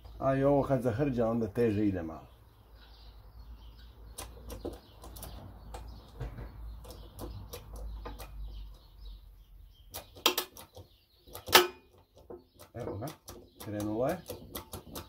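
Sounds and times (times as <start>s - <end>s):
sharp knocks: 10.0s - 15.0s.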